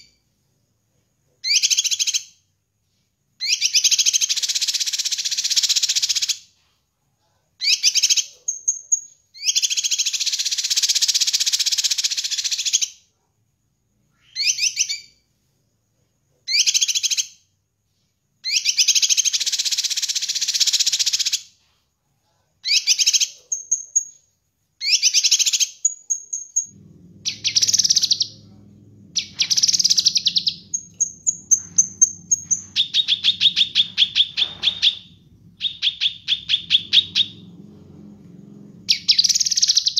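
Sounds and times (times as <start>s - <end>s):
low steady hum: 26.6s - 39.9s
bird singing trills and whistles: 29.2s - 37.4s.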